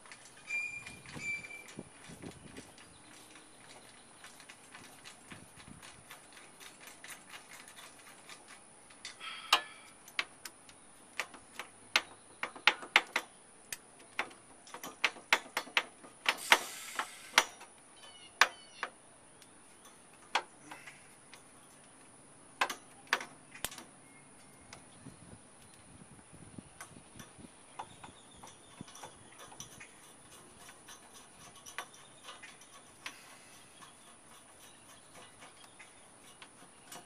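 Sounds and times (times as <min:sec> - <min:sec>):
rasping scrape: 0:29.6 - 0:37.0.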